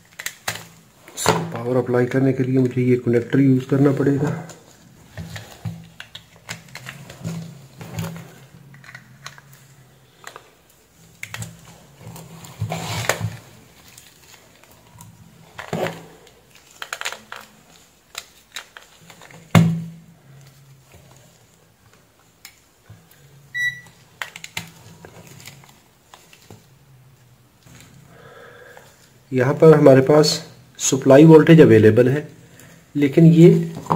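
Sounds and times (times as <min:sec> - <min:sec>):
clicks and knocks of handled objects: 0:00.0 - 0:01.6, 0:04.1 - 0:23.2, 0:23.9 - 0:26.7
short high beep: 0:23.6 - 0:23.9.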